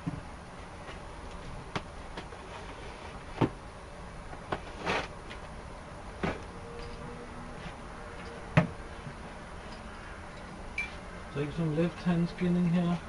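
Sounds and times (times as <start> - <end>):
cardboard scraping rustle: 4.6 - 5.2.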